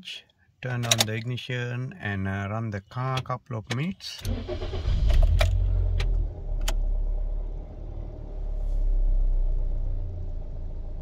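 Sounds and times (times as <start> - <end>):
car engine cranking and idling: 4.2 - 11.0.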